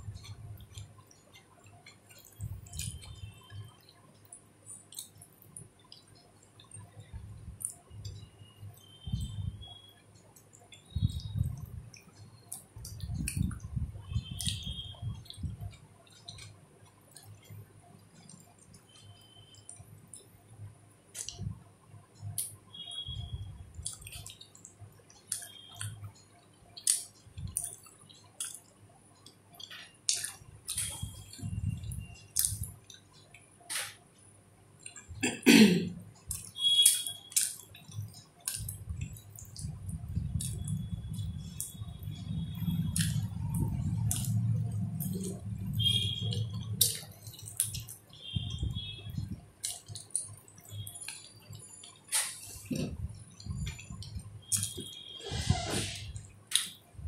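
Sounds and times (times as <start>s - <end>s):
wet chewing and lip smacks: 0.0s - 20.3s, 21.1s - 21.6s, 22.2s - 33.4s, 36.2s - 55.2s, 56.2s - 56.8s.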